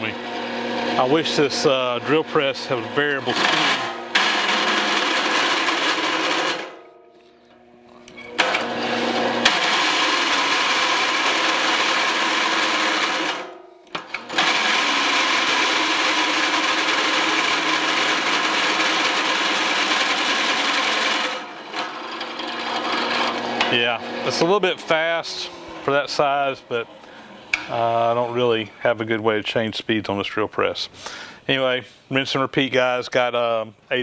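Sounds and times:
drill press cutting steel: 0.0s - 6.9s, 8.1s - 27.8s.

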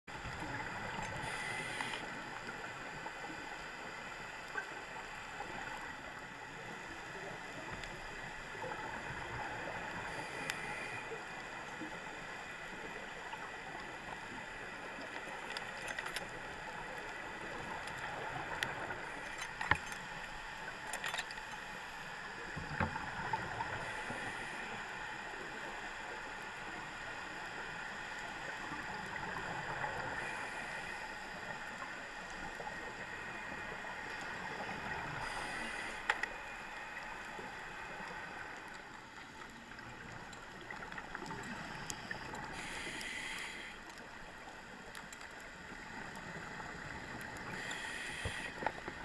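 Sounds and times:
underwater hiss: 0.5s - 4.6s, 6.6s - 15.4s, 22.2s - 28.8s, 29.4s - 32.0s, 32.9s - 38.5s, 40.7s - 44.1s, 46.2s - 49.0s.

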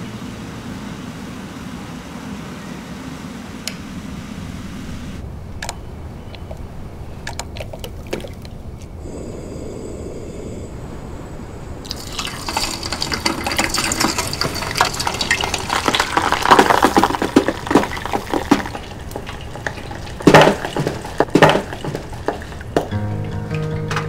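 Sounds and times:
food frying in hot oil: 11.9s - 22.7s.

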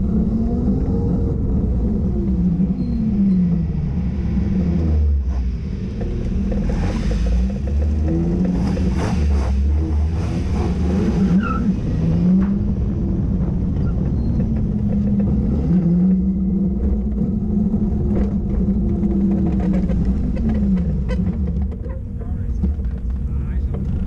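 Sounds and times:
engine at low revs: 0.0s - 24.0s
rally car passing: 0.0s - 24.0s
steady low rumble: 0.0s - 24.0s.

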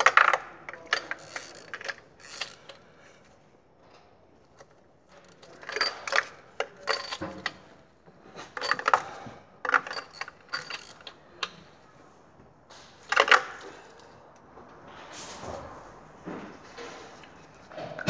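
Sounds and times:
socket ratchet clicking: 1.0s - 2.8s, 10.0s - 11.1s.

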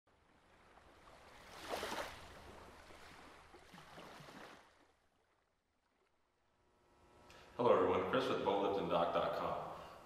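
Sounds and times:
rushing water: 0.2s - 5.4s
water splash: 0.5s - 5.4s.

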